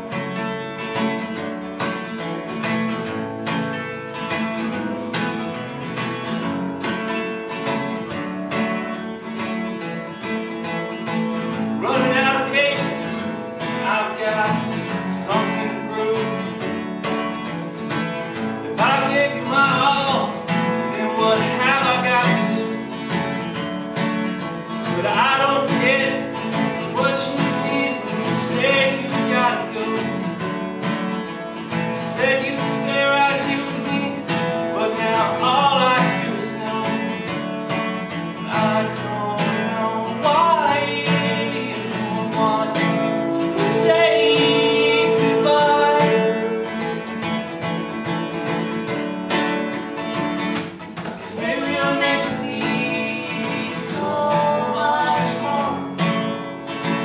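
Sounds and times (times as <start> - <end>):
two acoustic guitars playing: 0.0 - 57.0
person singing: 11.8 - 16.6, 18.6 - 23.1, 25.0 - 30.3, 38.4 - 48.0, 51.2 - 56.3.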